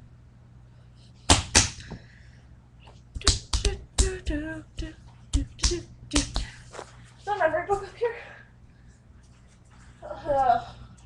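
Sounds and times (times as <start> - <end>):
hand slaps: 1.3 - 2.0, 3.2 - 6.6.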